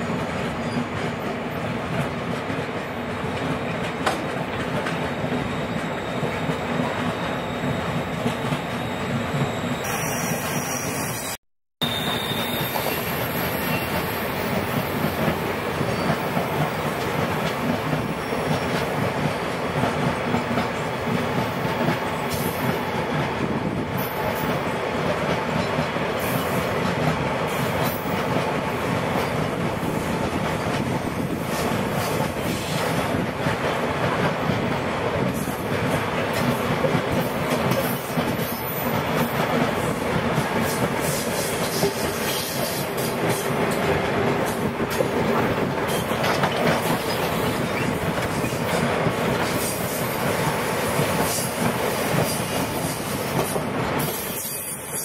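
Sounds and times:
freight train wagons rumbling past: 11.8s - 55.0s.

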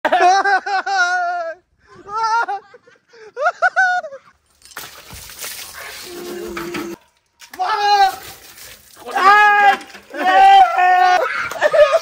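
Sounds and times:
water splashing over person: 7.6s - 10.8s
high-pitched laughing: 10.1s - 12.0s.

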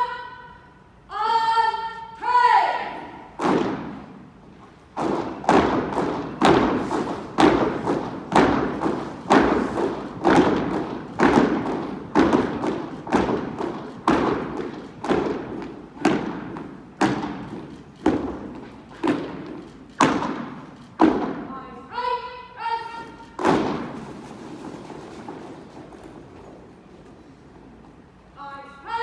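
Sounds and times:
boots marching on hard floor: 5.0s - 21.4s.

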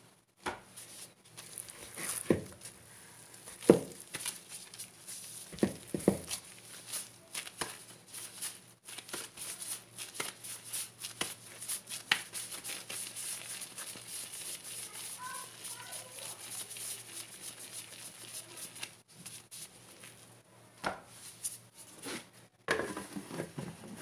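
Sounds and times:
plastic gloves crinkling: 0.7s - 20.4s
dough thumps: 2.0s - 2.7s, 3.5s - 4.4s, 5.5s - 6.5s.

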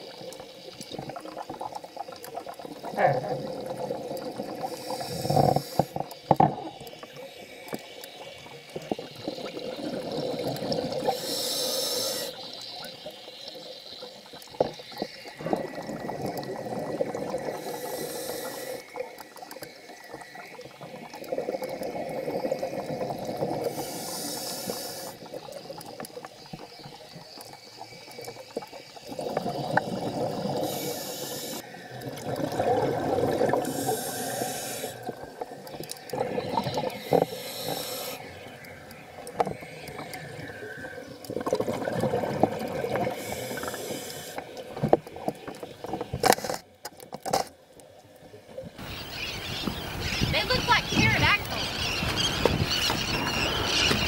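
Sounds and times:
exhaled air bubbling: 0.0s - 47.2s
regulator inhale hiss: 4.6s - 6.1s, 11.0s - 12.5s, 17.4s - 19.1s, 23.6s - 25.4s, 30.5s - 31.8s, 33.5s - 35.2s, 36.9s - 38.6s, 43.0s - 44.6s.

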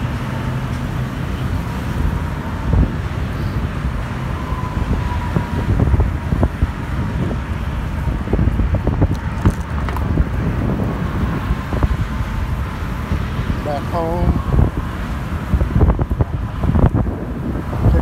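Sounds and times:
highway traffic: 0.0s - 18.0s
wind buffeting microphone: 0.0s - 18.0s
bike rattles and knocks: 8.4s - 10.6s.

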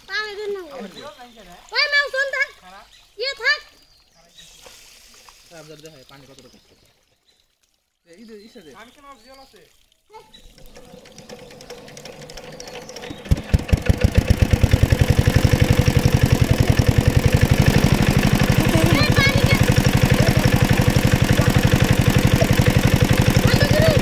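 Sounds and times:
water pump engine running: 10.2s - 24.0s.

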